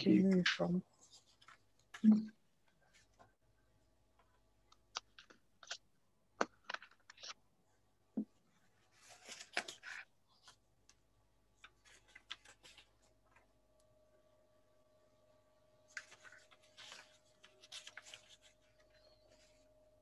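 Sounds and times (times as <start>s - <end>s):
paper rustle: 0.4s - 3.3s, 8.6s - 11.0s, 11.6s - 13.5s, 15.8s - 19.8s.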